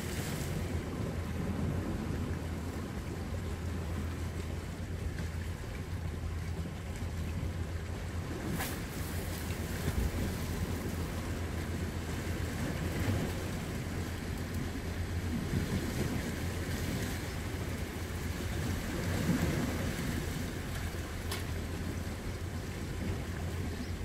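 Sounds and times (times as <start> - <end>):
small waves washing on rocks: 0.0 - 3.1, 8.1 - 22.3
wind rumbling on microphone: 0.0 - 24.0.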